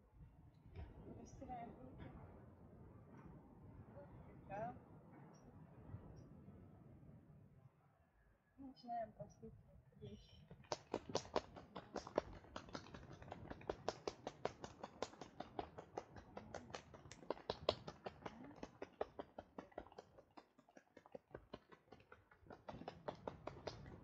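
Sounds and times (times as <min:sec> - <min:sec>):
hands tapping on body: 0:10.5 - 0:24.0.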